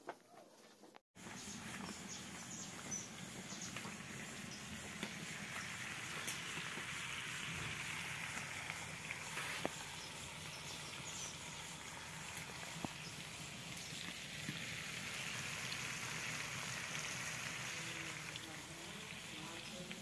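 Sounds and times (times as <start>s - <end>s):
burning wood crackling and popping: 1.2s - 20.0s
food sizzling in pots and pans: 1.2s - 20.0s.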